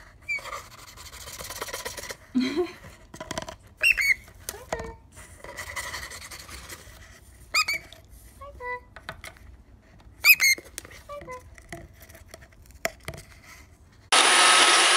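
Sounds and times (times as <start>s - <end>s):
bird rustling paper tube: 0.3s - 8.4s
cockatiel squeaky calls: 3.8s - 4.2s, 7.5s - 7.8s, 10.2s - 10.6s.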